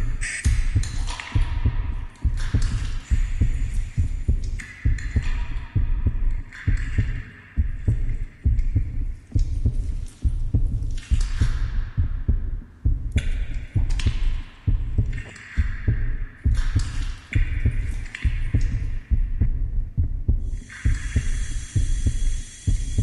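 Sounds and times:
heartbeat thumps: 0.0 - 23.0
wet hissing noise: 20.5 - 23.0.

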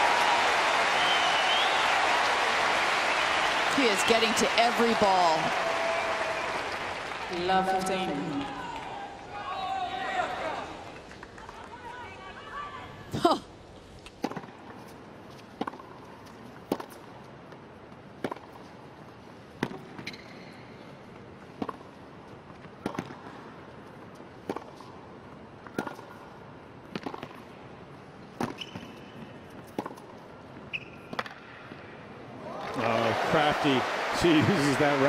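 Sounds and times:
tennis ball hit by racquets: 14.0 - 14.8, 15.5 - 17.1, 18.2 - 18.7, 19.5 - 20.2, 21.5 - 22.0, 22.8 - 23.4, 24.4 - 25.0, 26.8 - 27.5, 28.4 - 29.0.

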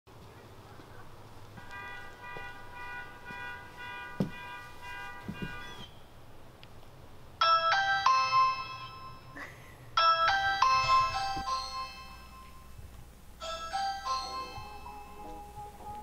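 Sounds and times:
low thumps: 1.5 - 5.9
electronic doorbell chime melody: 7.4 - 9.4, 10.0 - 12.8, 13.4 - 16.0
soft sustained music chords: 11.0 - 16.0.

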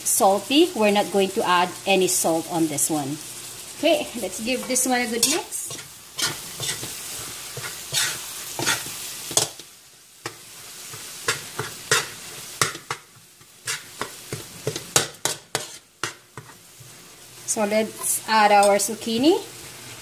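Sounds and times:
meat sizzling in a pan: 0.0 - 20.0
utensil scraping and knocking pan: 13.6 - 16.6.

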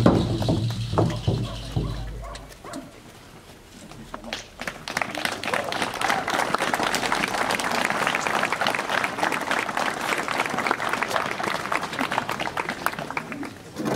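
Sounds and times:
crowd applauding: 4.2 - 13.9.

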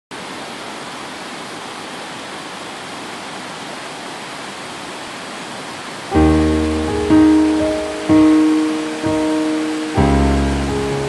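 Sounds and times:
waterfall rushing: 0.1 - 11.0
music with struck chord: 6.2 - 11.0.

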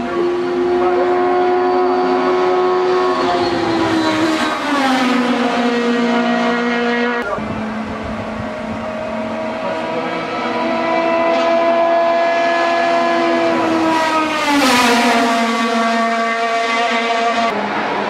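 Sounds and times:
racing car engine approaching: 0.0 - 18.0
racing car engine passing by: 0.0 - 18.0.

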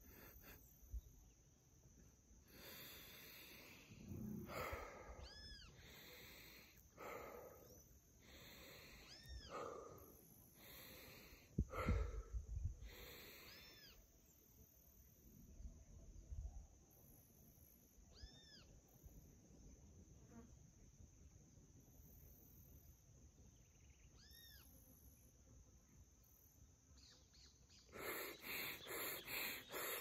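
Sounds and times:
person breathing through nose: 2.5 - 9.8, 10.6 - 13.6, 27.9 - 30.0.

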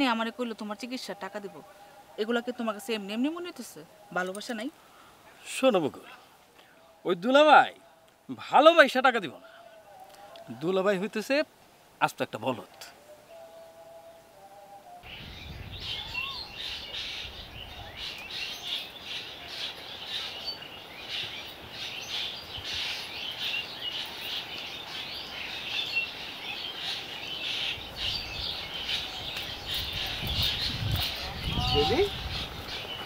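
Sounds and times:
birds chirping: 15.0 - 33.0.

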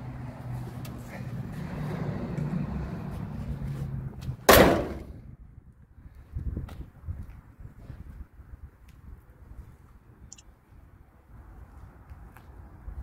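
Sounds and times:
car hood slammed shut: 4.5 - 5.2.

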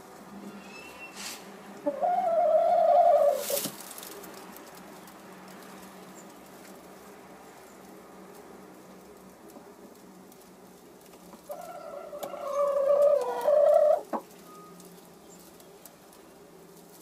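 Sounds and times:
hen calling: 0.5 - 3.6, 11.7 - 14.2.

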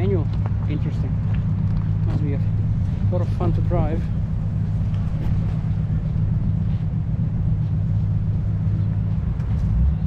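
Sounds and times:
car engine idling: 0.0 - 10.0.

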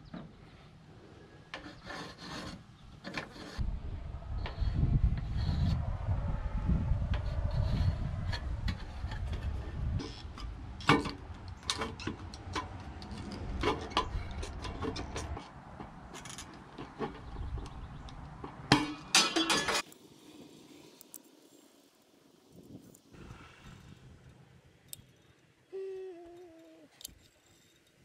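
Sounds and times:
sheet metal scraping and clicking: 1.5 - 3.6
low rumble: 3.6 - 10.8.

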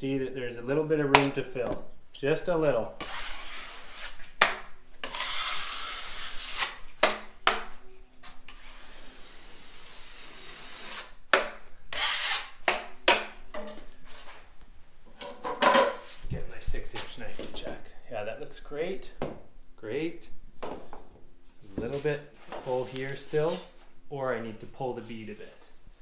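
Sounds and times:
drywall knife scraping: 3.0 - 7.2, 8.2 - 11.2, 11.9 - 12.9.

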